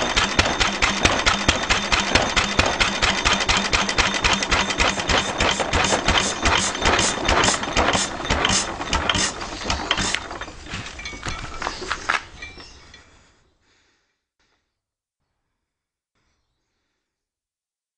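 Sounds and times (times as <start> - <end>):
stationary engine clattering: 0.0 - 12.5.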